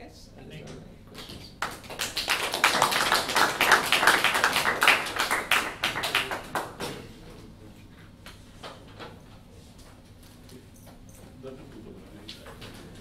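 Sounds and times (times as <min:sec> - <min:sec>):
audience applauding: 0:01.2 - 0:06.8.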